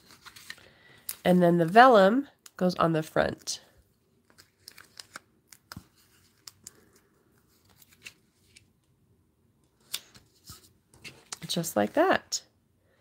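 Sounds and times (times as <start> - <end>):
paper clicks and rustles: 0.0 - 1.2, 4.2 - 8.7.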